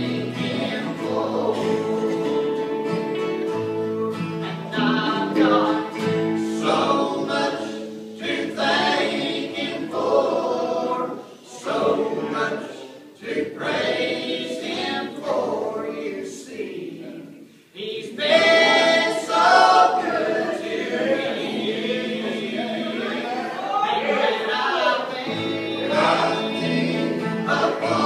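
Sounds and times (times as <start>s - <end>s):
electric and acoustic guitars: 0.0s - 15.6s, 25.1s - 28.0s
people singing gospel: 0.0s - 28.0s.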